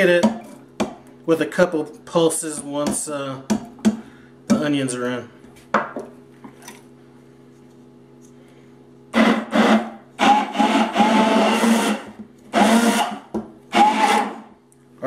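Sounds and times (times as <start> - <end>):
immersion blender bursts: 9.1 - 14.5.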